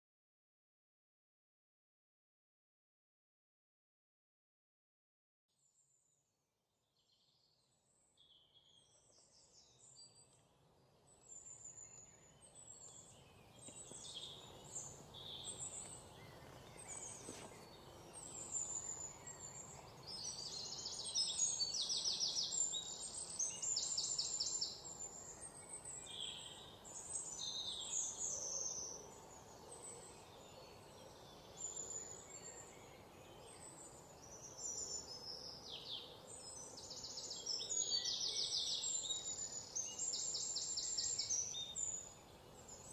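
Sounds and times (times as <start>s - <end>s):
small birds chirping and trilling: 7.0s - 42.9s
faint steady hiss: 9.1s - 42.9s.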